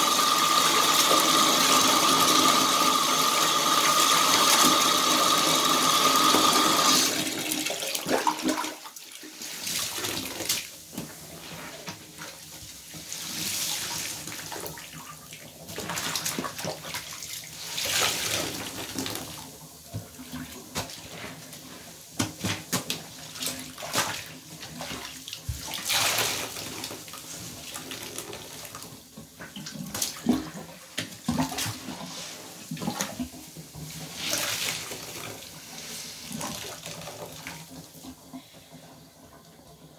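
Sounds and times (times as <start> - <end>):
bathtub faucet running: 0.0 - 20.7, 23.0 - 39.9
sponge squeezed with water squelching: 20.2 - 28.8.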